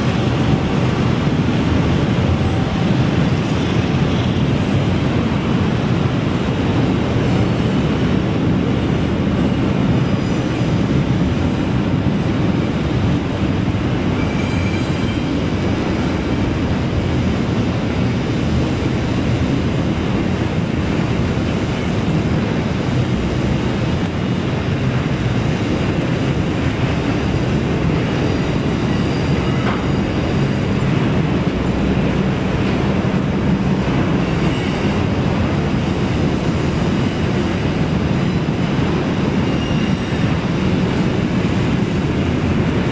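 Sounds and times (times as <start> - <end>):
freight train rumbling on rails: 0.0 - 42.9
faint wheel squeal: 14.1 - 15.4, 28.3 - 30.9, 39.4 - 40.3.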